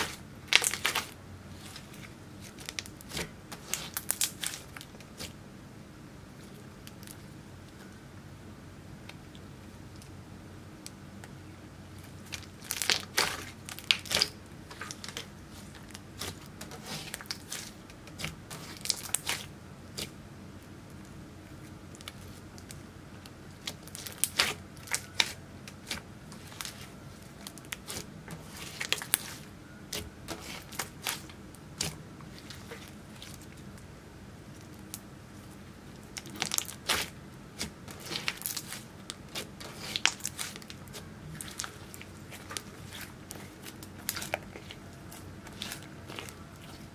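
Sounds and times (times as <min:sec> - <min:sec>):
sticky slime crackles and pops: 0:00.0 - 0:05.4, 0:12.0 - 0:20.2, 0:21.9 - 0:33.8, 0:36.0 - 0:46.9.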